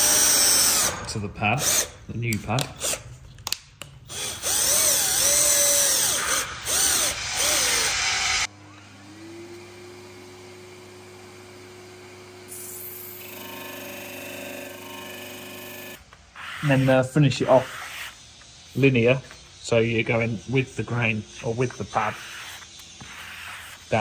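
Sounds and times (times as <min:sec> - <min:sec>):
cordless drill whirring: 0:01.6 - 0:02.0, 0:04.1 - 0:09.6.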